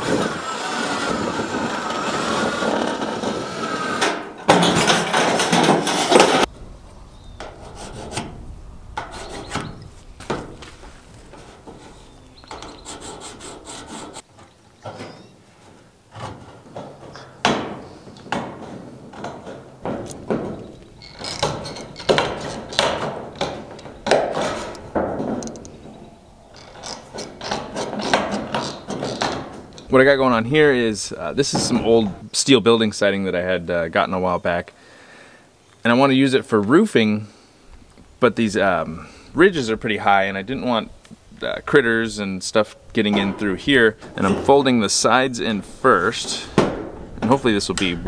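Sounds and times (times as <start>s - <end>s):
cordless drill driving into steel: 0.0s - 4.8s
scraping and handling metal sheet: 0.0s - 6.6s, 7.4s - 32.2s, 43.0s - 48.0s.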